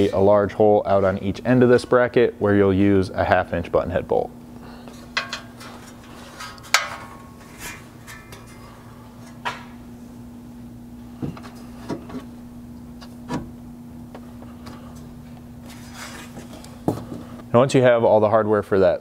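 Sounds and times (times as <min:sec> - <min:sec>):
steady low hum: 0:00.0 - 0:19.0
metal knocks and clinks: 0:05.1 - 0:09.7.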